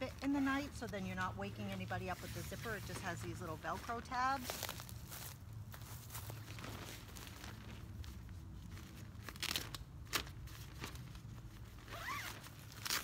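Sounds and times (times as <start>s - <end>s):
nylon tent fabric rustling: 0.0s - 13.0s
velcro ripping: 8.8s - 13.0s.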